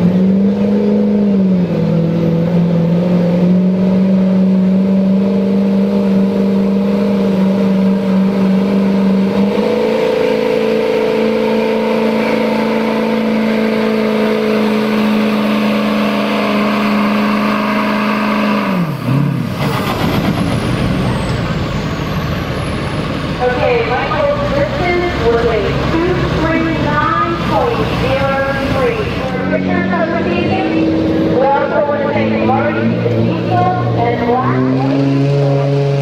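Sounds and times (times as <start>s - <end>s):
diesel truck engine at high revs: 0.0s - 36.0s.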